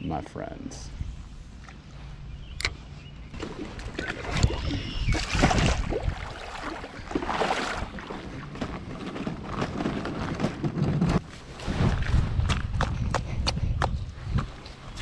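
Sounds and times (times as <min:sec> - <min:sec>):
water splashing around kayak hull: 0:03.4 - 0:11.2.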